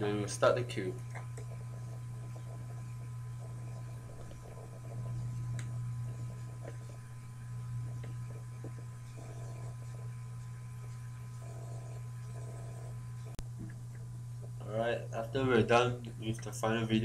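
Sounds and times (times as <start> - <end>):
faint high steady tones: 0.0 - 13.4
low electrical hum: 0.0 - 17.0.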